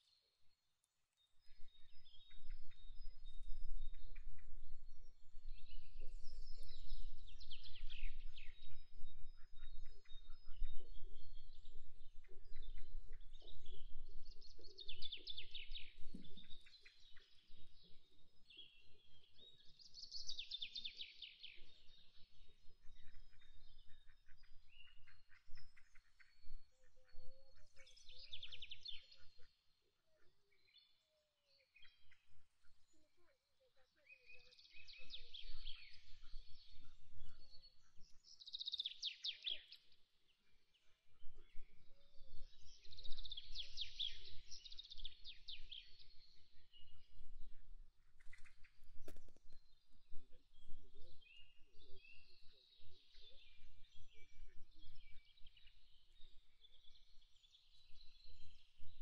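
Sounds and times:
songbirds twittering: 0.0s - 59.0s.

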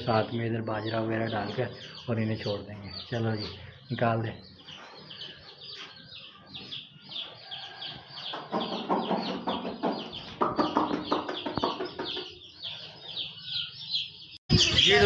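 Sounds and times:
baby chicks peeping: 0.0s - 15.0s.

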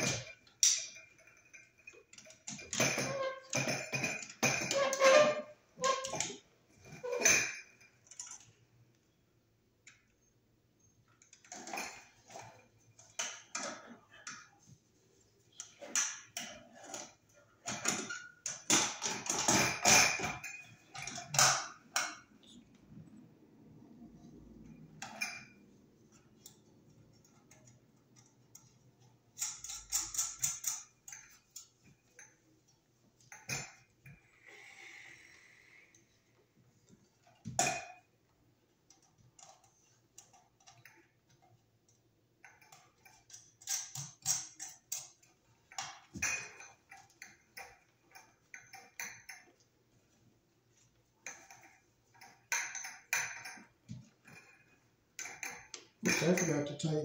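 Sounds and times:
small metallic clicks and clinks: 0.0s - 5.2s, 5.9s - 9.1s, 9.8s - 14.7s, 24.6s - 34.5s, 38.8s - 49.7s, 50.7s - 57.0s.

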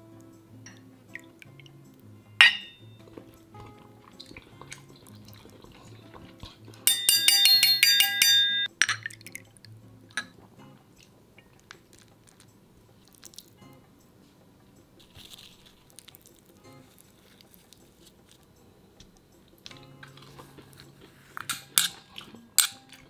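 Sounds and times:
soft background music: 0.0s - 23.0s
sharp glass clink: 2.4s - 3.0s, 6.9s - 9.1s.

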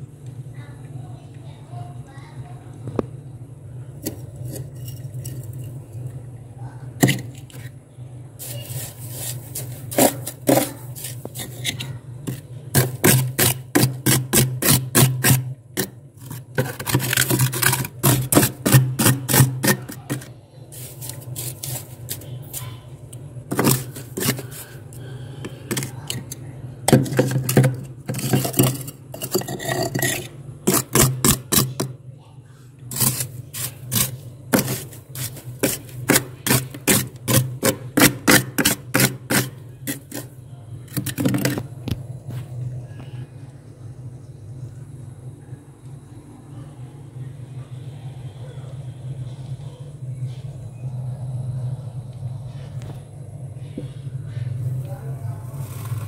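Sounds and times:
steady low hum: 0.0s - 56.0s
glass scraping freezer frost: 4.0s - 5.8s, 8.4s - 22.8s, 23.5s - 31.9s, 32.9s - 41.7s, 55.4s - 56.0s.

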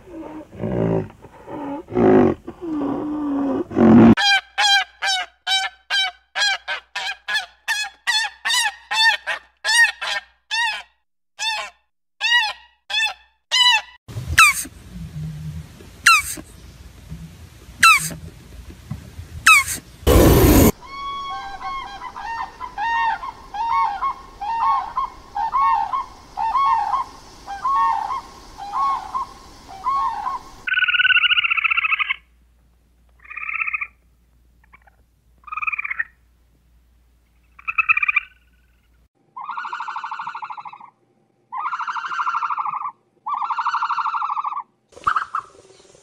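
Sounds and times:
animal calls: 19.5s - 32.2s, 39.4s - 45.6s.

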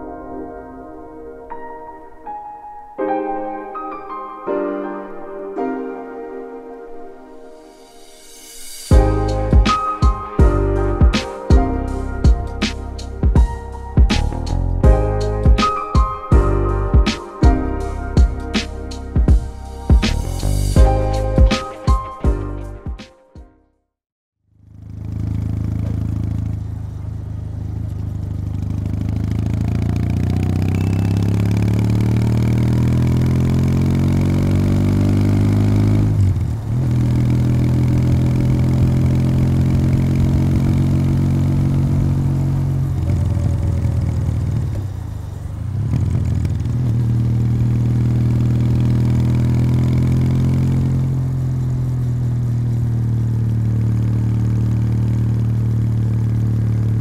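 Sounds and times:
motorcycle engine revving: 24.5s - 57.0s.

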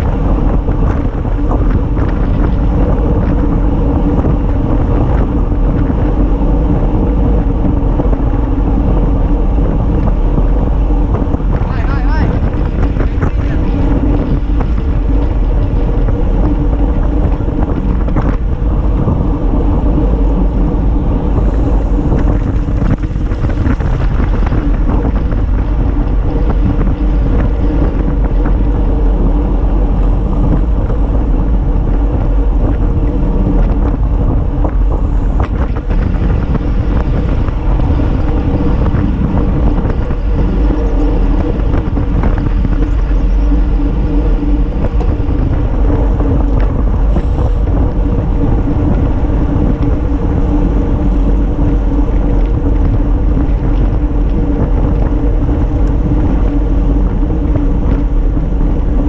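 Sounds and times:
bike clicks and rattles: 0.0s - 59.0s
wind rushing over microphone: 0.0s - 59.0s.

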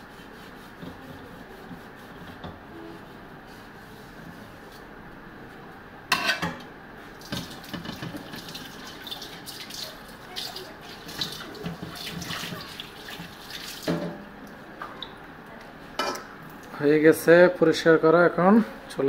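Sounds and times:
tap water splashing into metal basin: 7.2s - 14.2s.

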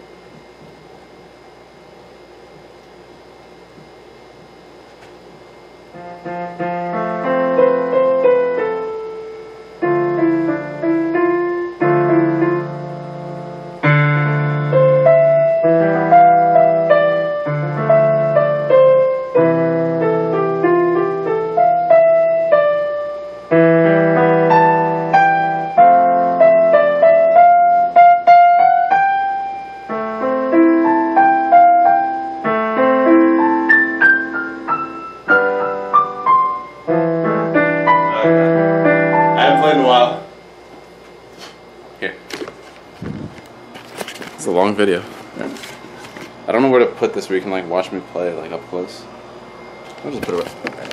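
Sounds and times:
digital piano playing chords: 5.8s - 40.5s.

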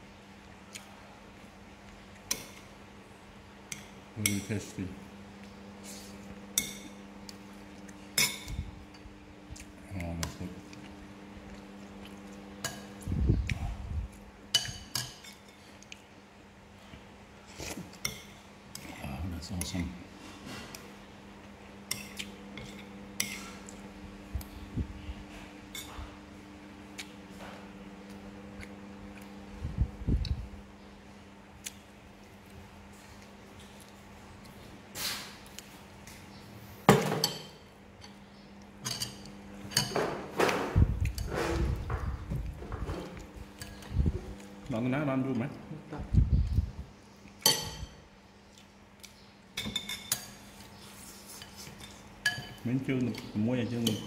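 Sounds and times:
spoons clinking against ceramic bowls: 3.7s - 4.7s, 8.1s - 9.0s, 14.5s - 15.6s, 37.2s - 38.2s, 38.8s - 40.0s, 47.4s - 48.0s, 49.6s - 50.6s, 51.4s - 54.0s
spoons clinking on ceramic bowls: 47.4s - 48.0s, 49.6s - 50.5s, 51.4s - 54.0s.

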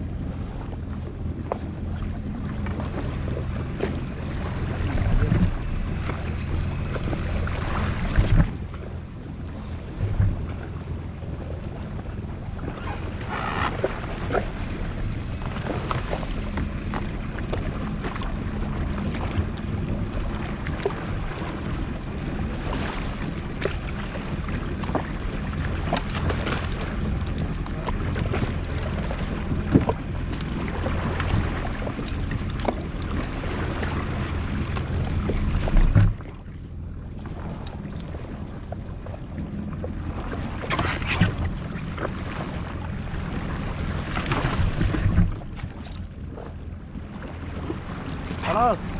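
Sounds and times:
wind on microphone: 0.0s - 17.9s
jet ski engine running: 0.0s - 48.9s
water slapping against hull: 0.0s - 48.9s.

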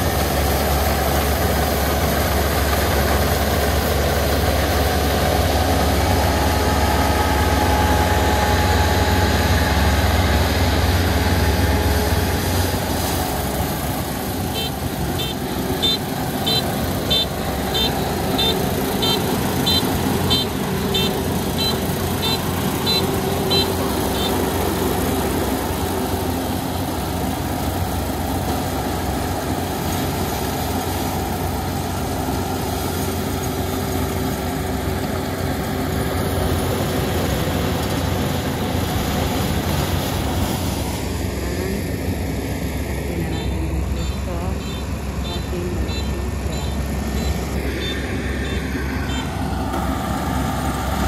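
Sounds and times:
diesel engine running steadily: 0.0s - 51.0s
electronic warning beeper: 43.3s - 49.3s.

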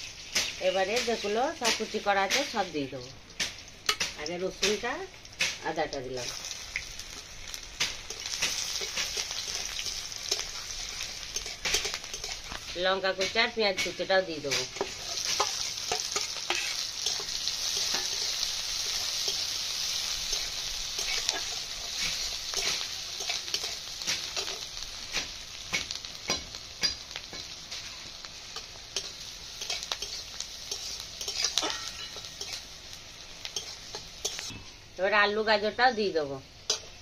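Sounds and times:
onion sizzling in hot oil: 0.0s - 37.0s
spatula scraping a wok: 7.1s - 34.7s.

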